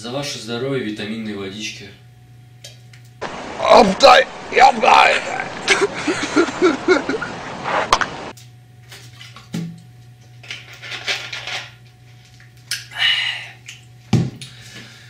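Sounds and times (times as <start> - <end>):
electrical hum: 0.0 - 15.0
loud noisy audio: 3.2 - 5.7
breaths: 12.9 - 13.6, 14.4 - 15.0.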